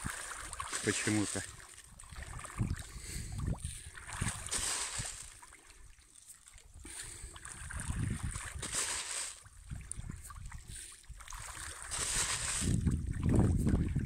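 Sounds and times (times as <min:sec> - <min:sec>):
fish splashing at surface: 0:00.0 - 0:03.0, 0:04.0 - 0:05.7, 0:06.4 - 0:09.6, 0:10.8 - 0:13.0
wind on microphone: 0:02.1 - 0:05.3, 0:07.5 - 0:08.8, 0:09.6 - 0:10.8, 0:11.9 - 0:14.0.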